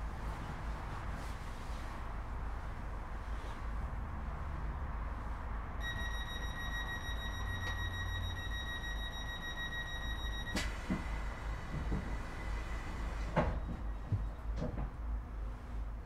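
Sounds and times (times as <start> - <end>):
train interior low rumble: 0.0 - 16.0
high steady tone: 5.8 - 10.6.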